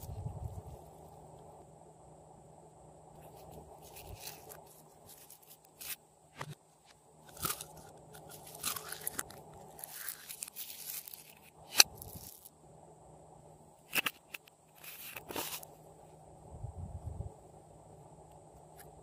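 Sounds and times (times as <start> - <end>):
slime crackling and squelching: 7.3 - 12.5.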